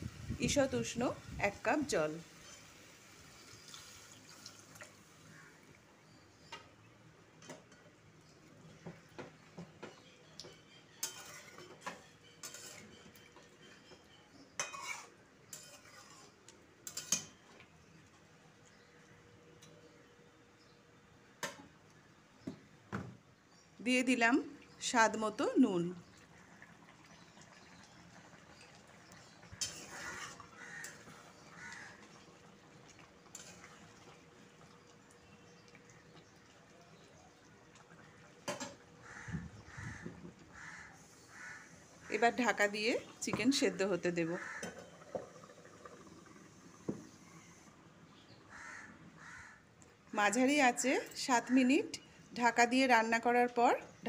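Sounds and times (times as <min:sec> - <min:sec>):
stirring in watery gravy: 0:07.4 - 0:18.9, 0:26.0 - 0:42.1
spatula scraping metal pan: 0:11.0 - 0:13.1, 0:14.6 - 0:17.4, 0:29.6 - 0:31.2
wet scraping in pan: 0:11.0 - 0:17.5, 0:26.6 - 0:37.0.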